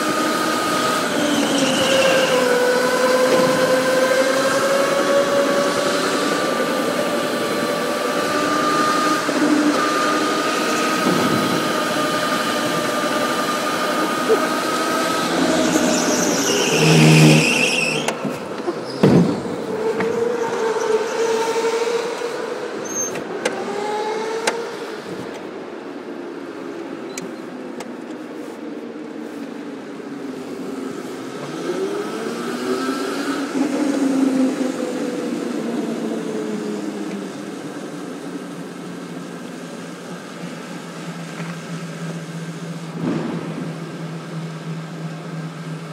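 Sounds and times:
high squeal: 0.2s - 6.4s, 8.2s - 21.8s
electric motor whining: 8.4s - 18.2s.

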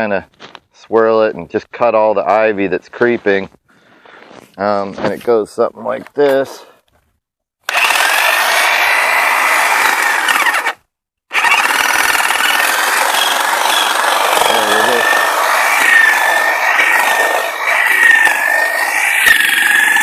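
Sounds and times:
electric hedge trimmer cutting: 7.7s - 20.0s.

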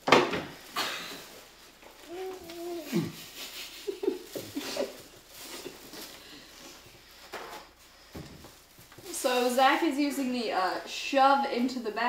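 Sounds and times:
plastic bag rustling: 0.4s - 10.9s
muffled vocal noises: 2.1s - 3.4s.

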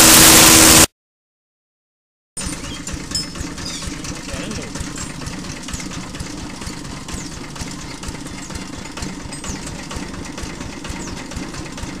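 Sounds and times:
shredder machine throbbing: 0.0s - 0.9s, 2.4s - 12.0s
small engine running: 0.0s - 0.9s, 2.4s - 12.0s.

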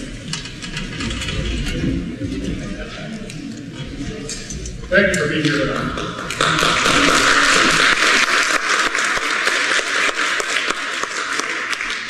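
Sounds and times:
audience applauding: 5.9s - 12.0s.

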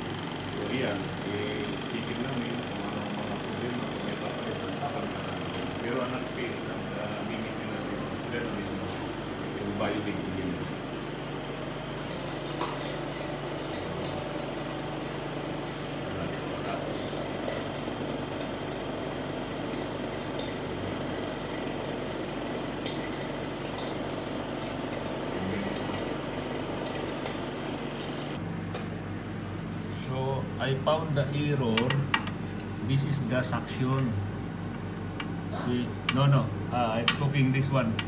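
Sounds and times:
vacuum pump humming: 0.0s - 38.0s.

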